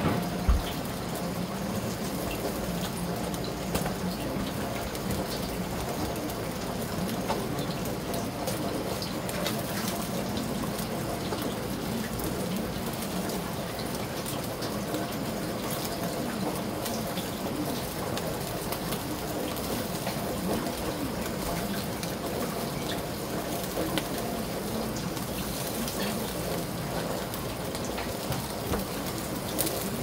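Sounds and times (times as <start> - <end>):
charcoal crackling: 0.0 - 30.0
fish sizzling on a grill: 0.0 - 30.0.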